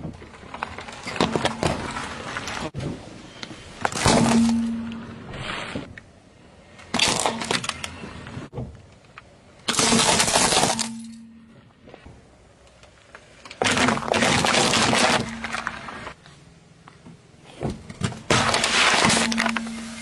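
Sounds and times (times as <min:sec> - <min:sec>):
tyre crushing plastic toys: 0:00.4 - 0:02.7, 0:03.8 - 0:05.1, 0:06.9 - 0:08.0, 0:09.6 - 0:11.3, 0:13.4 - 0:16.2, 0:17.6 - 0:20.0.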